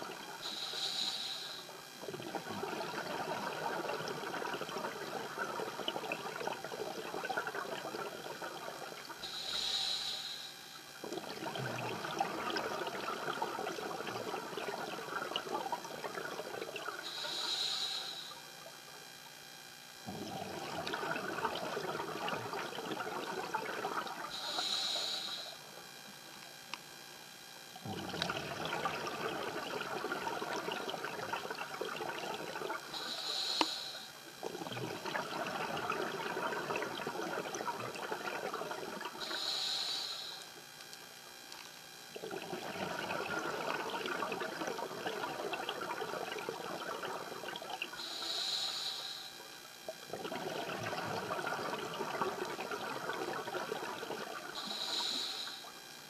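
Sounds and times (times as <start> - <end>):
exhaled bubbles crackling underwater: 0.0 - 10.0, 10.9 - 19.1, 20.0 - 26.6, 27.8 - 40.7, 41.5 - 56.0
regulator inhalation hiss: 0.4 - 1.8, 9.2 - 10.9, 17.0 - 18.6, 24.3 - 25.7, 32.9 - 34.3, 39.2 - 40.6, 48.0 - 49.6, 54.5 - 55.8.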